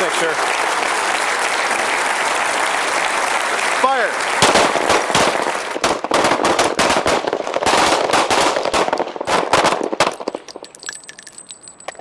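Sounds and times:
pistols firing rapidly: 4.4 - 10.7.

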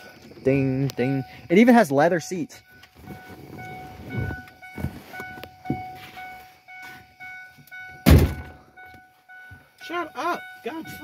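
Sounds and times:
car warning chime dinging: 0.4 - 11.0
loud thump: 8.0 - 8.7.

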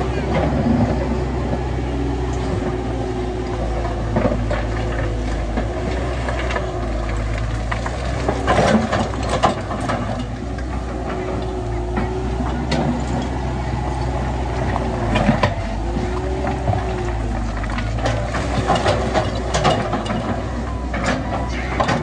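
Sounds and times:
heavy diesel machinery running: 0.0 - 22.0
metallic clanks and knocks: 3.7 - 13.5, 15.0 - 22.0.

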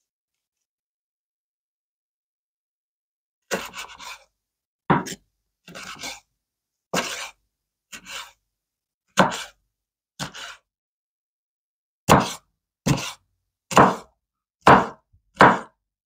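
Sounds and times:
knife slicing pepper on board: 3.5 - 4.2, 4.9 - 6.2, 7.0 - 7.3, 7.9 - 8.4, 9.2 - 9.6, 10.2 - 10.6, 12.1 - 15.7.

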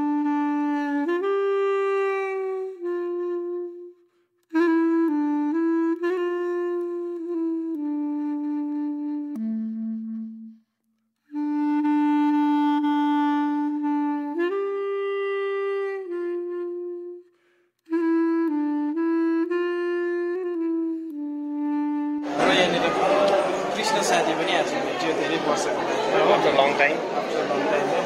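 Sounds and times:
slow solo melody: 0.0 - 10.6, 11.3 - 17.3, 17.9 - 23.9.

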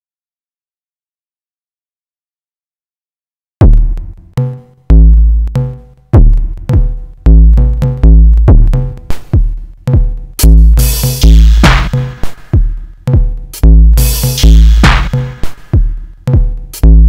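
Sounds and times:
deep kick drums: 3.6 - 17.0.

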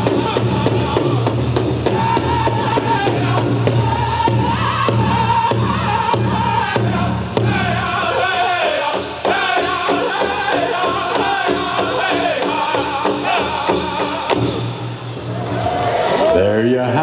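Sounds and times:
group singing in unison: 0.0 - 14.8
big drum beats: 0.0 - 15.7.

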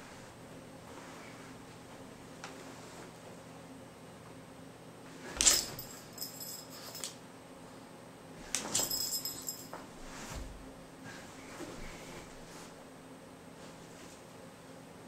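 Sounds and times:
collar tags jingling: 5.4 - 7.1, 8.7 - 9.8.

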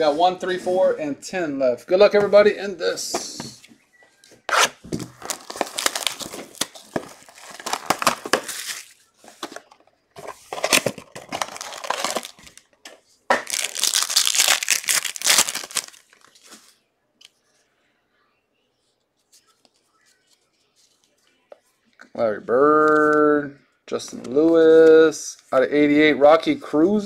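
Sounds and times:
foil wrapper crinkling and tearing: 5.1 - 9.0, 10.5 - 12.6, 13.4 - 16.5.

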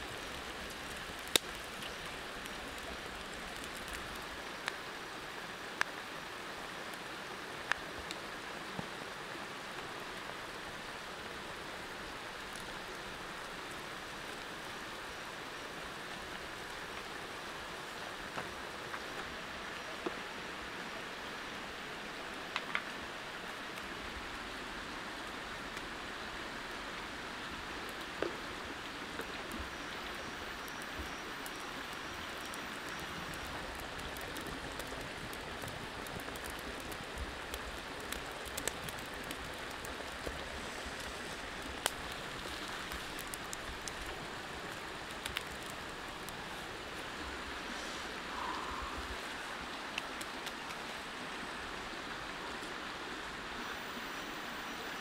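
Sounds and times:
faint clicks and ticks: 0.0 - 4.8, 22.5 - 23.0, 29.1 - 47.3.

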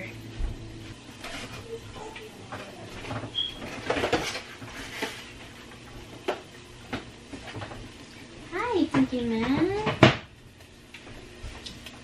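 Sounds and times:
items knocking on shelves: 8.8 - 10.3.

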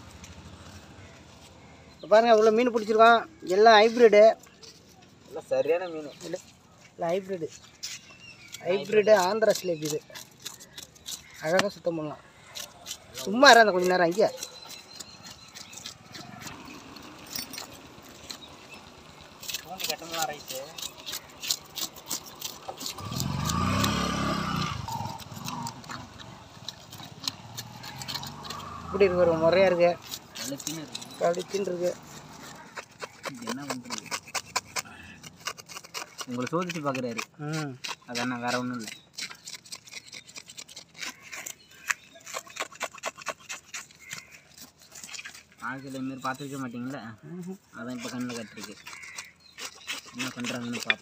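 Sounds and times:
vehicle engine passing by: 0.0 - 1.9, 15.9 - 19.7, 22.9 - 32.7
knife scraping fish scales: 7.5 - 51.0.

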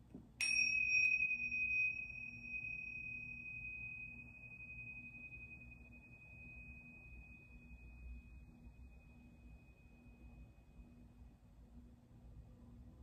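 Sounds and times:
small cymbals ringing: 0.4 - 11.4.

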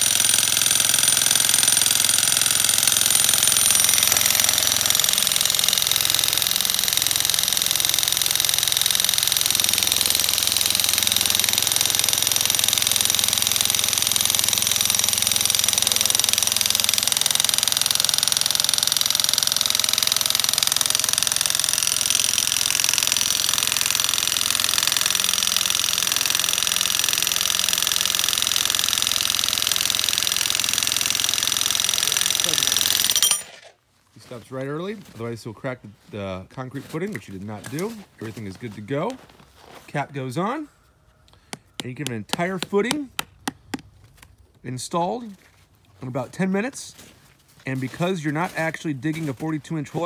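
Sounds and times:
electric jackhammer running: 0.0 - 33.7, 41.4 - 43.8.

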